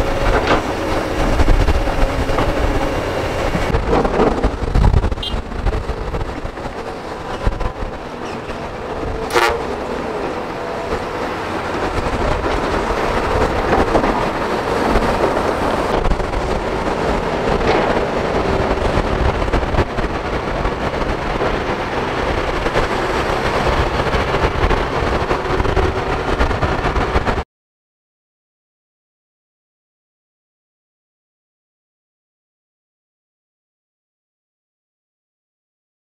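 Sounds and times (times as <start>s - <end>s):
diesel engines running under load: 0.0s - 27.4s.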